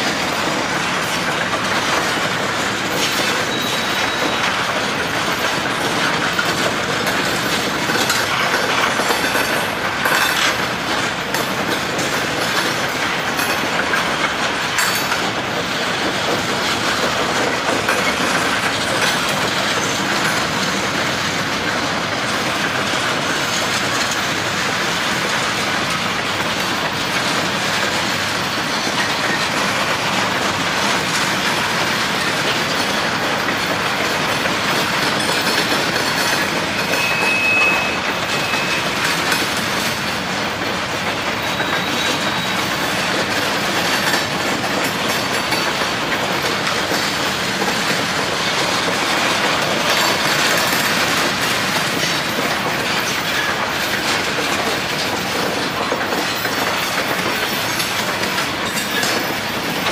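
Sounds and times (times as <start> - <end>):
clickety-clack over rail joints: 0.0 - 59.9
train wheels rumbling on rail: 0.0 - 59.9
high wheel squeal: 3.4 - 4.6, 36.8 - 39.0, 41.4 - 43.2.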